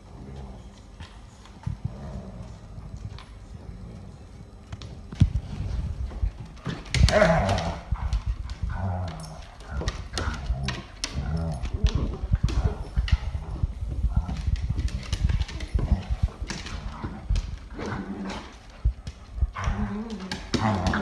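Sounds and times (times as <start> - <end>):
dogs growling: 0.0 - 4.6, 5.4 - 21.0
claws scrabbling on wooden floor: 4.8 - 21.0.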